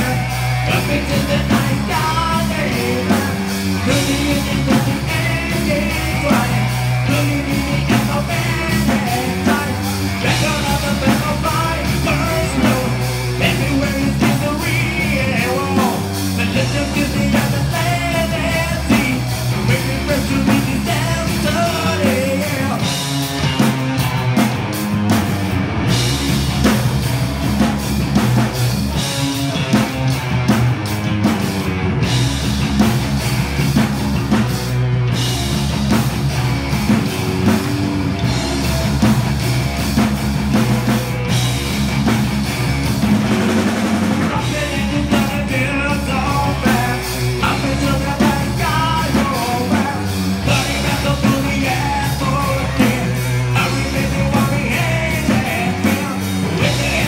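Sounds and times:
person singing: 0.0s - 23.0s, 44.1s - 57.0s
drum kit: 0.0s - 57.0s
electric bass: 0.0s - 57.0s
electric guitar: 0.0s - 57.0s.

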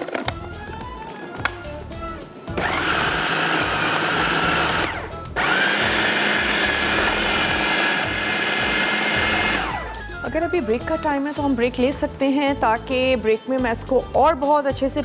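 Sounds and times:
food processor motor running: 2.6s - 10.1s.

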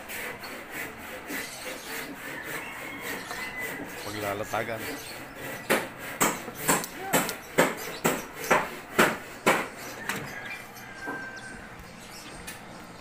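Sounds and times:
hammer strikes: 5.4s - 9.8s.

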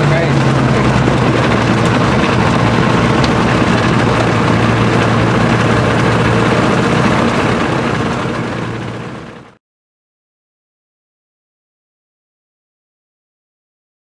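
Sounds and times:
aircraft engine and propeller running: 0.0s - 9.6s.

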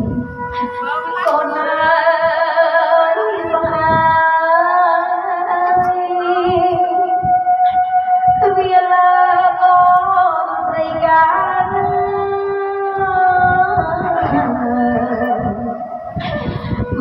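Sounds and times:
woman singing through microphone: 0.0s - 17.0s
bowed fiddle: 5.0s - 10.7s, 12.9s - 17.0s.

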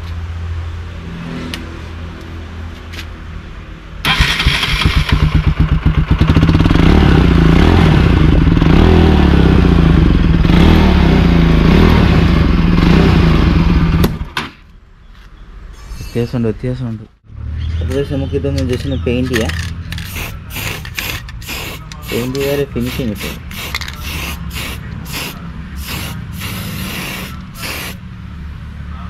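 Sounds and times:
motorcycle engine running: 4.1s - 14.2s.

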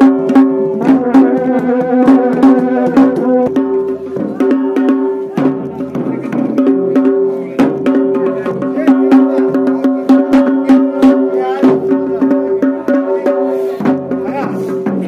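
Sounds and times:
drums beaten in quick rhythm: 0.0s - 15.0s
droning wind instrument melody: 0.6s - 3.9s.

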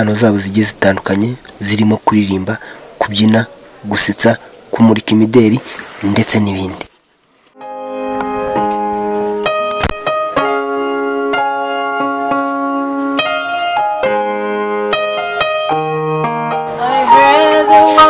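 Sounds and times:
electronic keyboard chords: 7.6s - 18.0s.

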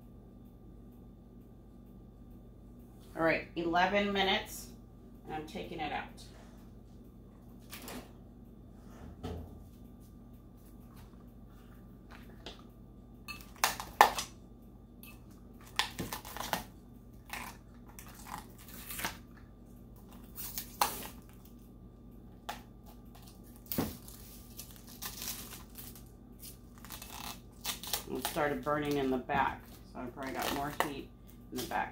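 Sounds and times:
plastic wrap and paper crinkling: 22.9s - 31.0s.

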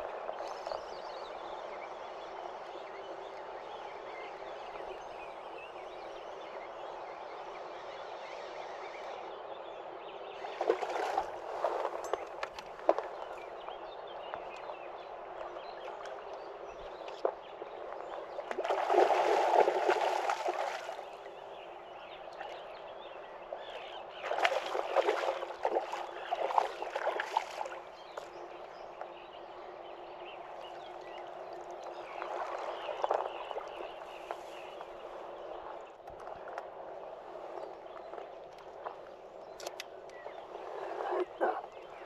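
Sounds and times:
river water running: 0.0s - 42.0s
water splashing and sloshing: 10.4s - 13.4s, 18.4s - 21.4s, 23.6s - 28.5s, 30.6s - 34.9s.

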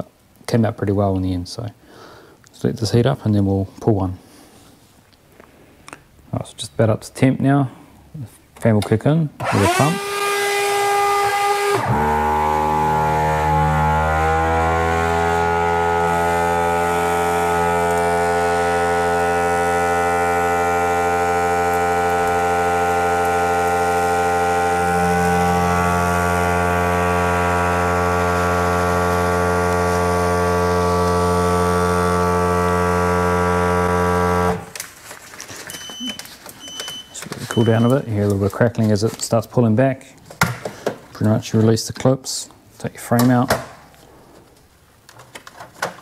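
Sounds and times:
vacuum pump and fan humming: 9.4s - 39.3s.

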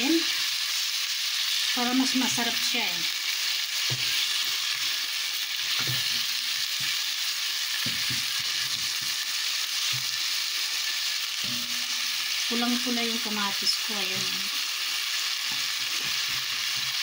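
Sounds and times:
onion and tomato sizzling in oil: 0.0s - 17.0s
spatula scraping and stirring: 3.8s - 12.3s, 15.4s - 17.0s.

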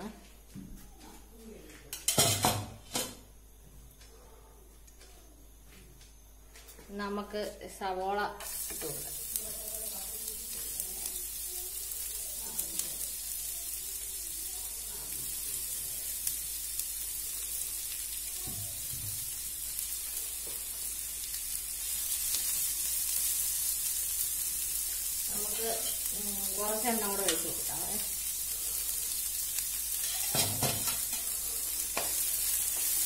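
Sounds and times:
onions sizzling in oil: 7.1s - 33.0s.

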